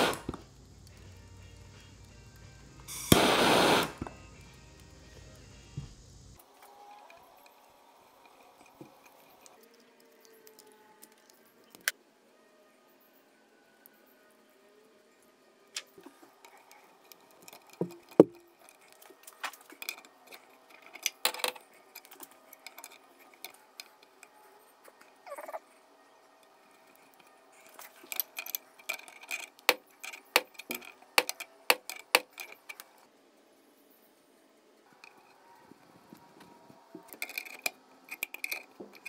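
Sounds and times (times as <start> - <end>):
metal fittings clicking and tapping: 15.8 - 24.1, 26.8 - 32.9, 37.0 - 39.0.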